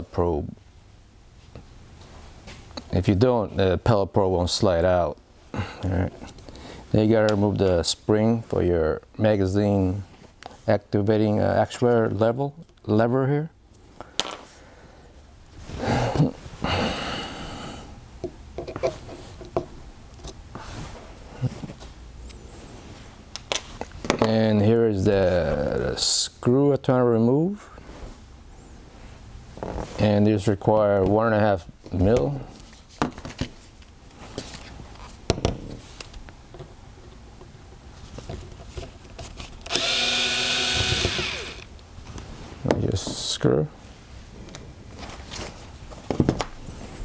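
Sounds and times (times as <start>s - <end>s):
electric screwdriver running: 39.7s - 41.7s.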